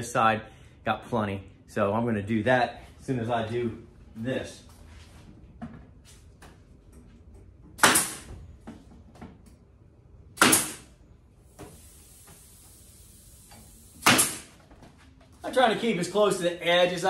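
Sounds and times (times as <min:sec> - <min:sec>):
staple gun firing: 0:07.8 - 0:08.2, 0:10.4 - 0:10.9, 0:14.0 - 0:14.5.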